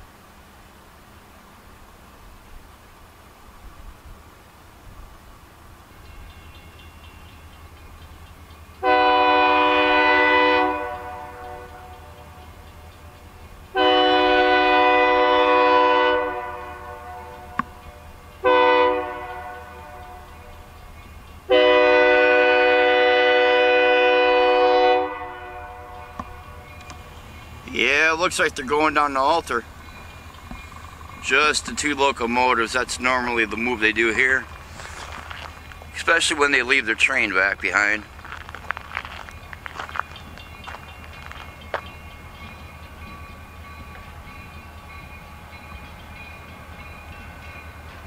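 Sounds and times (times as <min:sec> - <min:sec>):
locomotive air horn blasts: 0:08.8 - 0:12.0, 0:13.7 - 0:20.6, 0:21.5 - 0:26.6
low steady rumble: 0:23.9 - 0:40.8.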